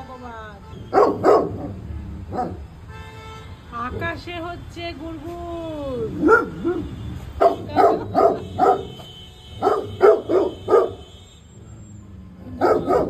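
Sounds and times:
dog barking: 0:00.9 - 0:02.6, 0:06.2 - 0:11.1, 0:12.6 - 0:13.0.

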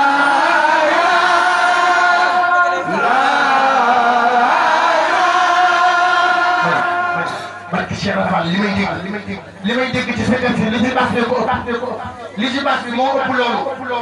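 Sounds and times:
voices chanting together: 0:00.0 - 0:07.7.

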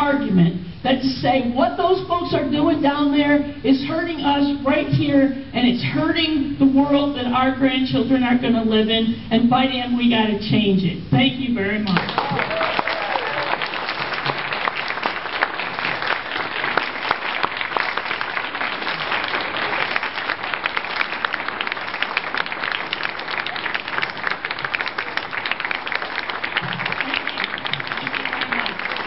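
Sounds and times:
crowd applauding: 0:12.0 - 0:29.0.

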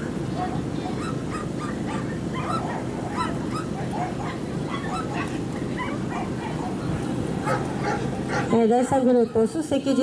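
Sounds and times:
dogs barking in short yaps: 0:07.4 - 0:08.6.

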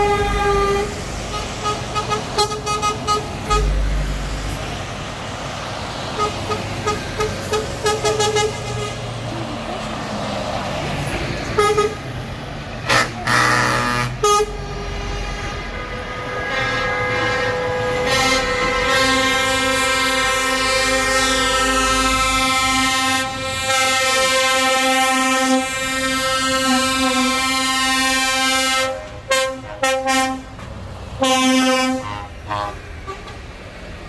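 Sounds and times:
multi-note horn: 0:00.0 - 0:04.1, 0:12.8 - 0:30.5, 0:31.2 - 0:33.3
air horn toots and blasts: 0:00.0 - 0:04.2, 0:06.2 - 0:09.1, 0:11.5 - 0:12.1, 0:12.8 - 0:30.6, 0:31.2 - 0:33.4
lorry diesel engines: 0:00.0 - 0:34.0.

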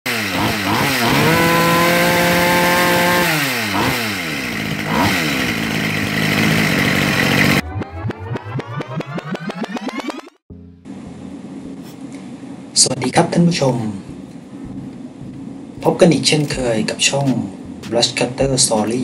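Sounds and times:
brushcutter engine revving: 0:00.1 - 0:07.6
music: 0:10.5 - 0:11.2.

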